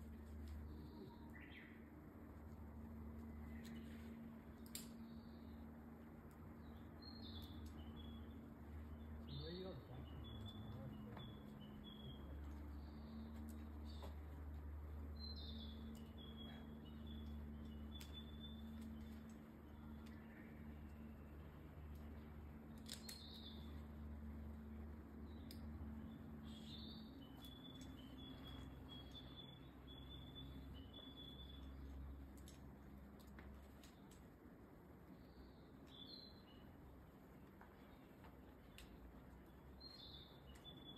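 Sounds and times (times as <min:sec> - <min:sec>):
low background hum: 0:00.0 - 0:40.9
faint bird chirps: 0:15.2 - 0:21.5.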